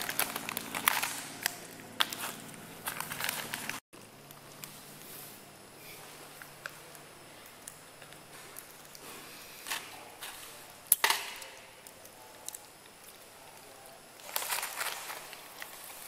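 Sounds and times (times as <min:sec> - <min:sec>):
rustling nibbles: 0:11.8 - 0:16.0.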